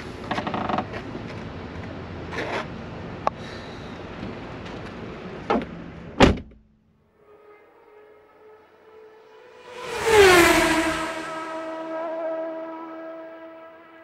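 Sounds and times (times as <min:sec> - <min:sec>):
truck door slamming: 0:05.5 - 0:06.6.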